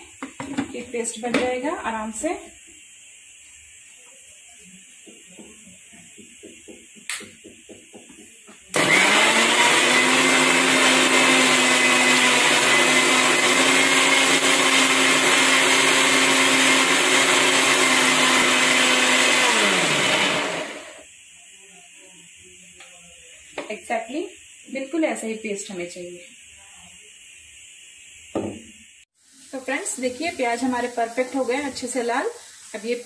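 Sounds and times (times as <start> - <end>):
mixer grinder motor running: 8.7 - 21.1.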